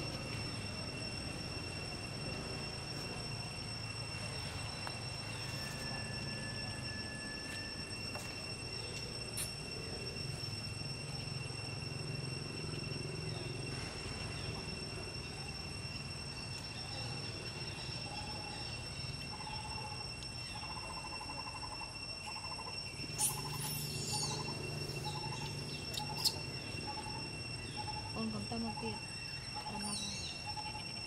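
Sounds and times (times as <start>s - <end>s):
high insect drone: 0.0s - 31.0s
short trilled calls: 17.7s - 31.0s.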